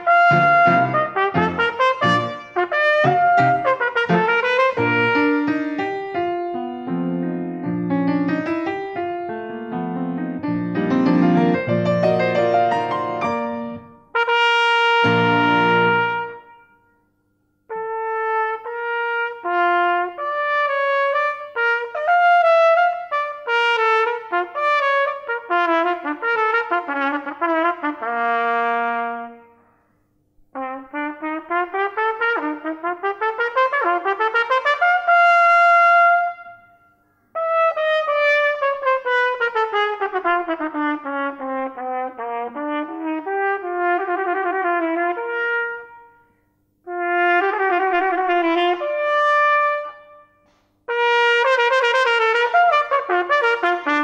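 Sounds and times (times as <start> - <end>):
trumpet playing quick notes: 0.0 - 6.3, 11.0 - 16.8, 46.9 - 54.0.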